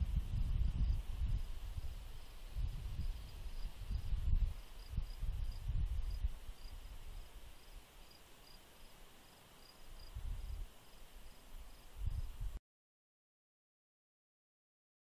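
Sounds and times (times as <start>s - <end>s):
crickets chirping: 0.6s - 12.3s
high insect trill: 0.8s - 12.3s.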